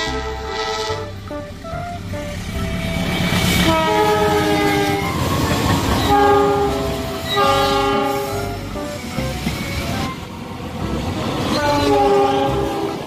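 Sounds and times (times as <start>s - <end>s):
locomotive horn blasts: 0.0s - 8.7s, 11.5s - 13.0s
passing train rumble: 0.0s - 13.0s.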